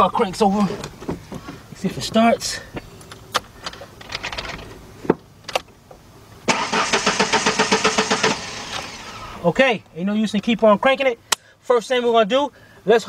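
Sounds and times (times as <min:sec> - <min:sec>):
engine cranking without starting: 0:06.5 - 0:09.4.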